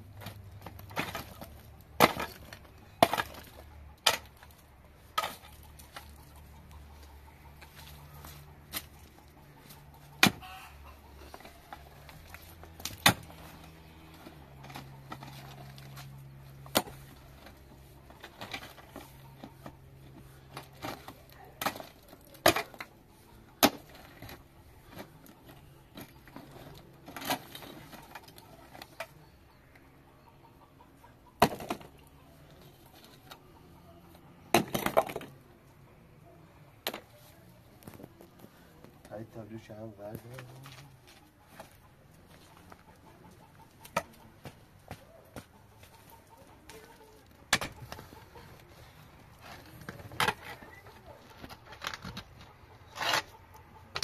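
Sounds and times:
loose stones scraping: 0.0 - 29.2, 36.8 - 54.0
pickaxe striking stony earth: 2.0 - 4.3, 10.2 - 10.6, 12.8 - 13.4.

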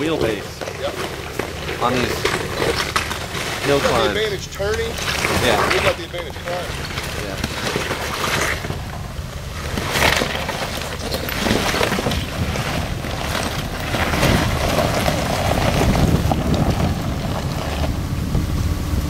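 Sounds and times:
tyres crunching over rock: 0.0 - 18.3
engine running under load: 0.0 - 19.0
wind buffeting microphone: 11.0 - 19.0.

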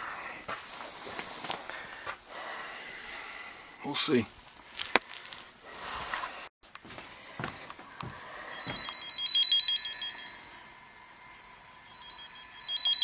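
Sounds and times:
two-pitch rapid beeping tone: 8.5 - 10.7, 11.8 - 13.0.

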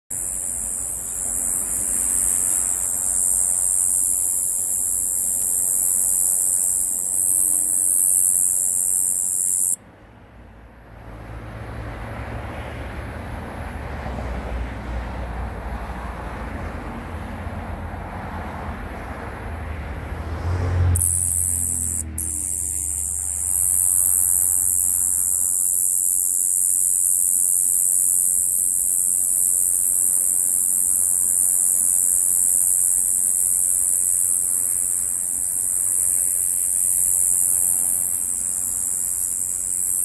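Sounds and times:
katydid high-pitched buzz: 0.1 - 9.8, 20.9 - 40.0.

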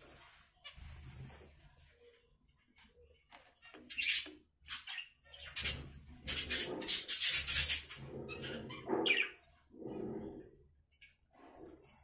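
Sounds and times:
budgerigars chirping: 3.9 - 9.4.

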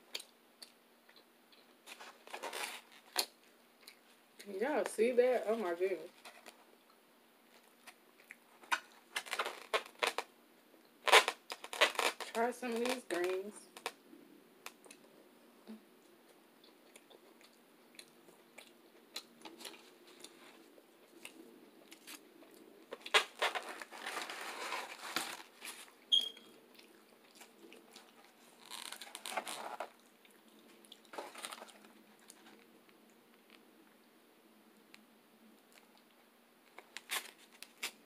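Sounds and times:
person chewing leafy greens: 0.1 - 4.5, 6.4 - 10.1, 16.2 - 33.2.

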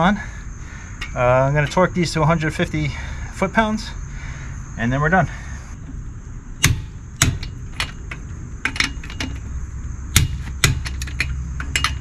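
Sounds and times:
torque wrench clicking: 10.2 - 12.0.

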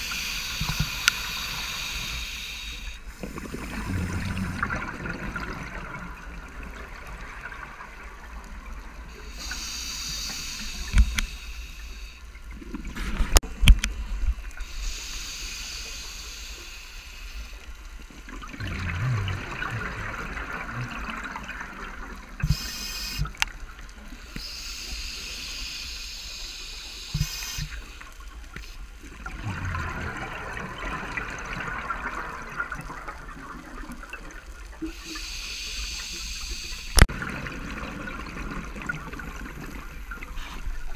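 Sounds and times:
hissing regulator inhalations: 0.0 - 4.6, 9.2 - 12.3, 14.6 - 17.7, 22.4 - 23.3, 24.1 - 28.9, 34.8 - 37.0
gurgling exhaled bubbles: 3.2 - 8.4, 18.3 - 22.4, 29.1 - 34.8, 36.9 - 40.9.

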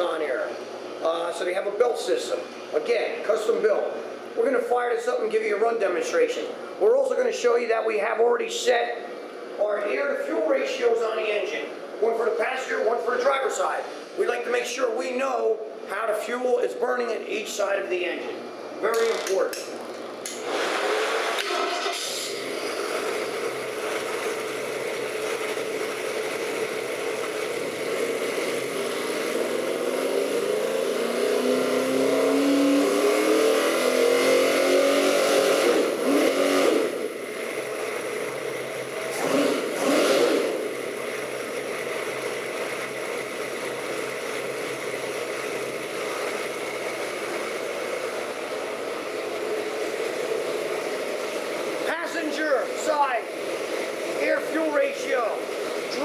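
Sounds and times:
engine revving and idling: 20.3 - 51.9.

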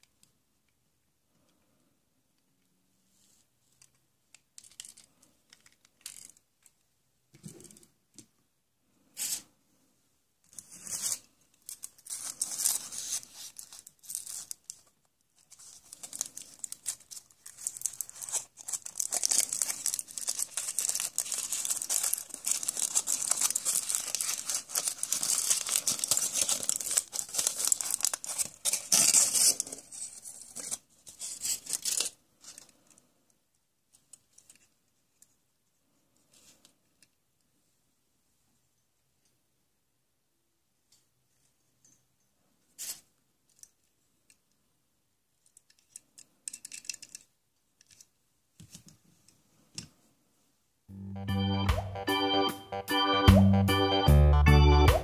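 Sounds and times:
foil wrapper crinkling and tearing: 10.7 - 32.6.

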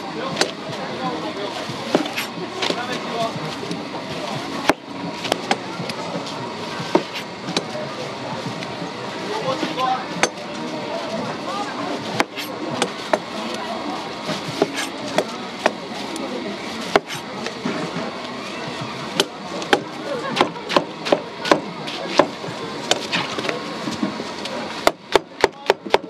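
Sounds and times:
knife chopping on cutting board: 16.9 - 17.2.

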